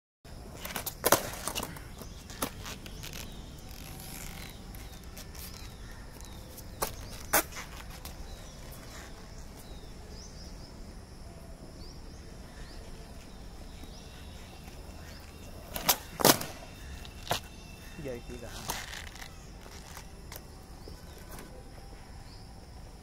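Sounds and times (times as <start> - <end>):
birds chirping: 0.3 - 22.8
skateboard clacking on concrete: 0.5 - 3.0, 15.6 - 17.5.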